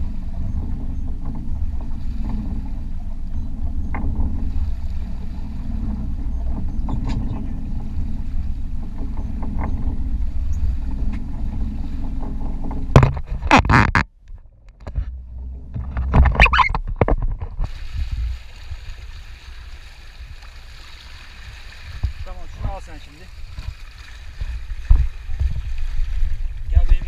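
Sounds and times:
boat engine idling: 0.0 - 16.7
water noise: 0.0 - 27.0.

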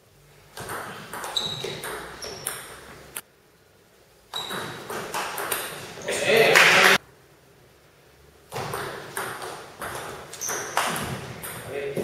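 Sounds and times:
table tennis ball hits: 0.6 - 2.8, 4.3 - 5.9, 8.5 - 12.0.

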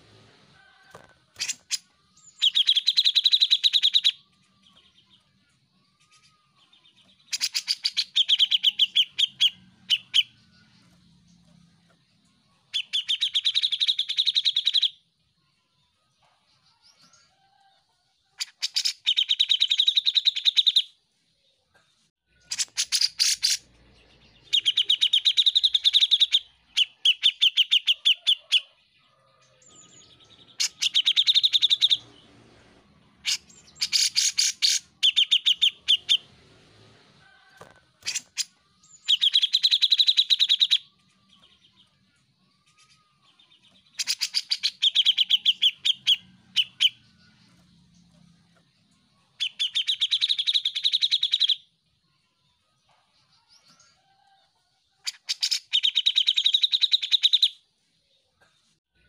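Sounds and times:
bird singing rapid repeated notes: 1.3 - 15.0, 18.4 - 21.0, 22.3 - 28.7, 29.7 - 32.2, 33.2 - 36.3, 38.0 - 51.8, 55.0 - 57.6.

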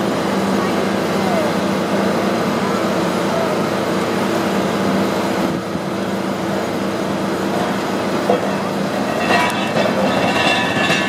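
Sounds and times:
excavator diesel engine hum: 0.0 - 11.0
rough machinery din: 5.5 - 11.0.

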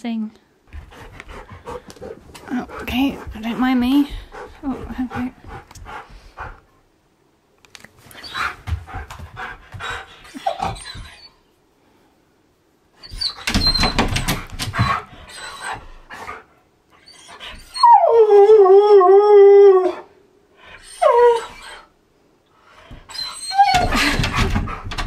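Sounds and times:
dog whining: 8.1 - 8.6, 10.2 - 11.5, 13.0 - 14.2, 14.8 - 16.0, 17.0 - 20.1, 20.7 - 22.0, 22.9 - 24.5
dog pawing at door: 13.4 - 15.1, 23.7 - 25.0.

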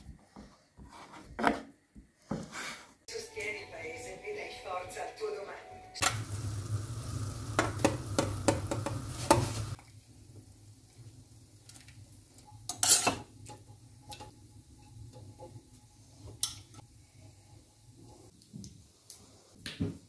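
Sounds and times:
burner hum: 6.0 - 11.4
water boiling in a pot: 6.0 - 20.0.

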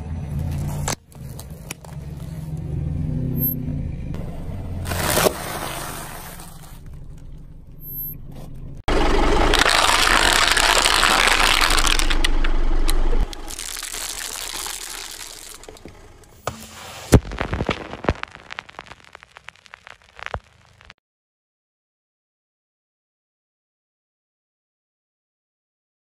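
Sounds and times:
tyre crushing plastic crackling: 4.8 - 7.4, 9.4 - 12.3, 13.2 - 20.7
snack bag bursting pop: 13.3 - 21.0.

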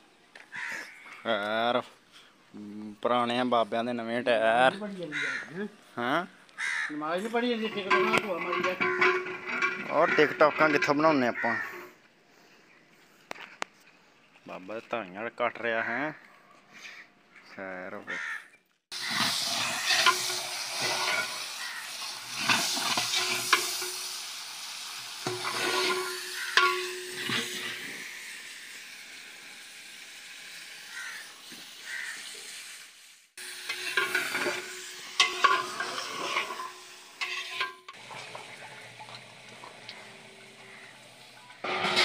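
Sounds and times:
curry sizzling: 6.6 - 11.9, 18.9 - 42.0
ladle scraping metal pot: 7.2 - 11.9, 18.9 - 24.2, 25.2 - 28.0, 33.4 - 42.0.

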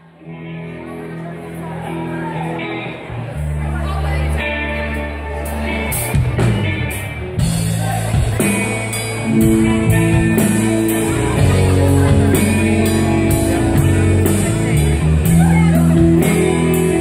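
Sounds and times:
rock band playing: 0.0 - 17.0.

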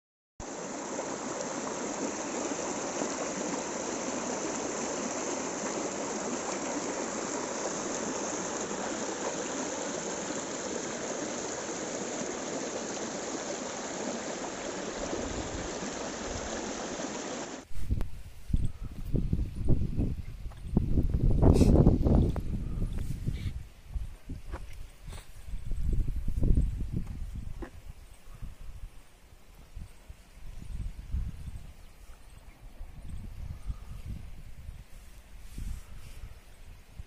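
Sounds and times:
stream splashing over rocks: 0.4 - 17.7.

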